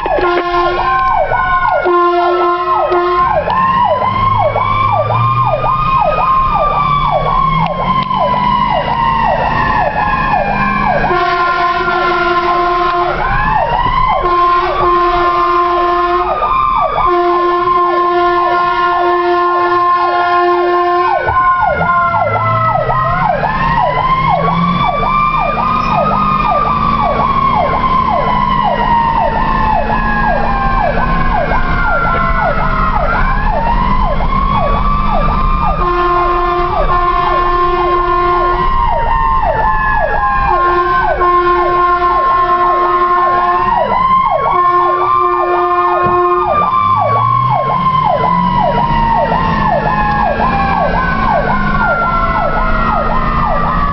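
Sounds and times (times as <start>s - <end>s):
air horn blasts: 0.0s - 3.7s, 10.5s - 23.2s, 35.7s - 38.9s, 40.4s - 46.7s
electronic siren yelp: 0.0s - 53.9s
mechanical siren wail: 0.0s - 53.9s.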